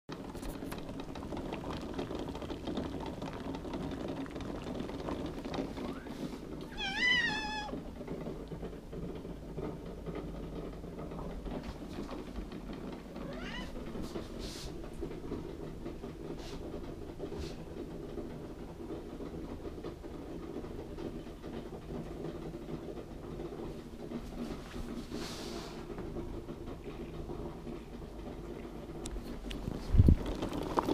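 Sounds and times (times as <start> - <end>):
cat meowing: 6.7 - 7.8, 13.2 - 13.8.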